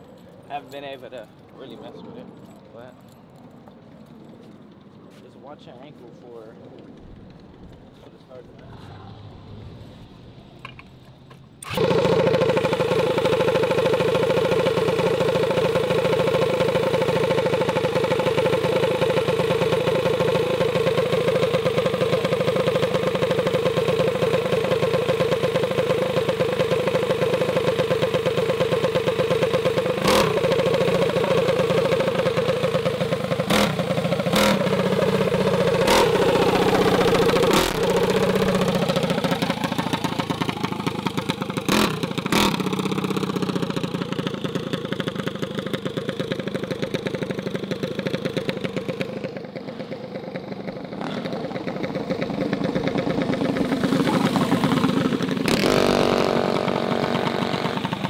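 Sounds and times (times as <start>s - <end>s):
small gasoline engine running: 11.6s - 58.0s.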